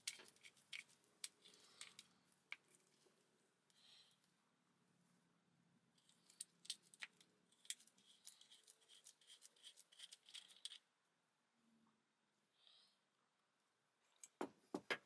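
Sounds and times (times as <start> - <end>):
small metal clicks and scrapes: 0.0 - 2.9, 6.0 - 10.8.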